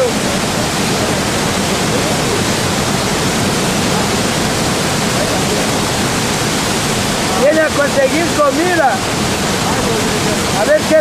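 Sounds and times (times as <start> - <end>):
waterfall rushing over rock: 0.0 - 11.0.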